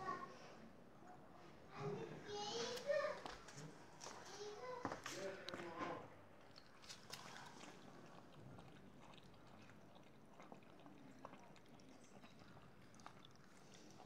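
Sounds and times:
puppies eating from plastic bowl: 3.2s - 14.0s.

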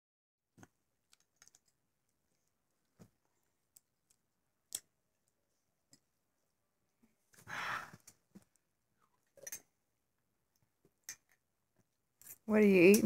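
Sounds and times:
breathy exhale: 7.4s - 8.0s.

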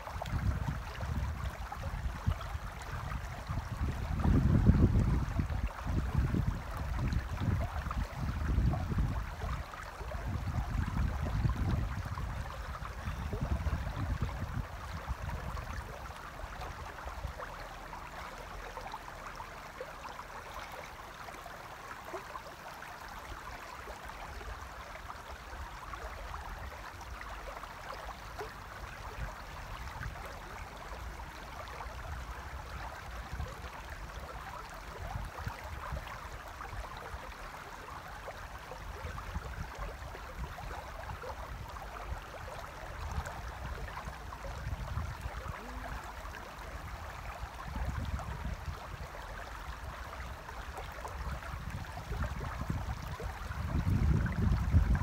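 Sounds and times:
river running over stones: 0.0s - 55.0s
wind buffeting microphone: 0.1s - 15.9s, 42.9s - 46.0s, 46.8s - 50.0s, 51.1s - 55.0s.

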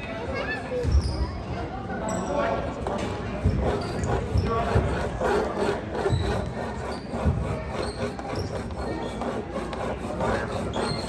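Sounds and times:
shoe squeaks: 0.8s - 1.4s, 3.4s - 9.2s, 10.2s - 11.0s.

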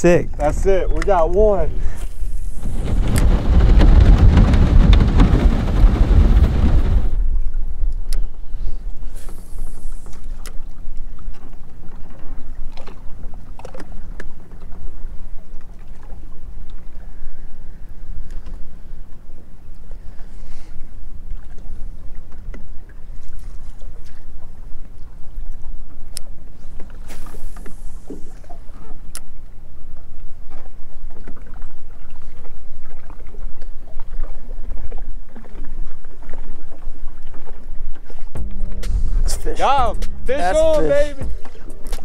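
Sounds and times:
wind buffeting microphone: 0.0s - 12.9s, 32.8s - 42.0s
water lapping against boat hull: 0.0s - 42.0s.

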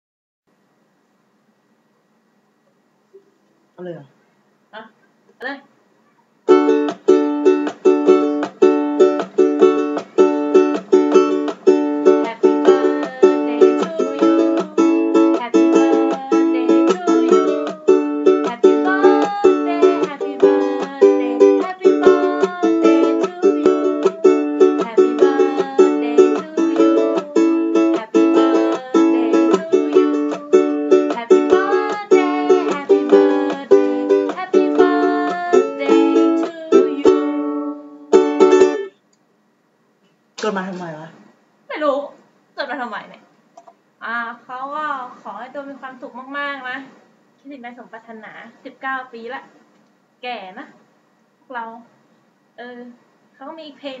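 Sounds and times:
ukulele strumming: 6.5s - 38.9s
woman singing: 12.0s - 37.9s.

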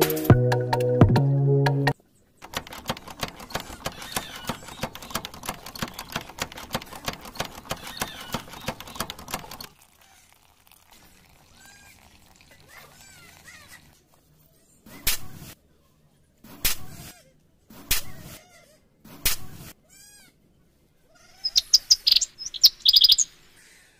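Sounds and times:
rapid even clicking: 2.4s - 9.7s.

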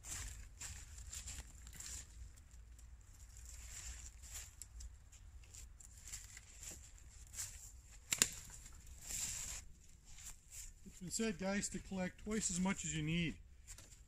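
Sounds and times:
branches rustling: 0.0s - 14.0s
dry twigs snapping: 7.4s - 9.1s.

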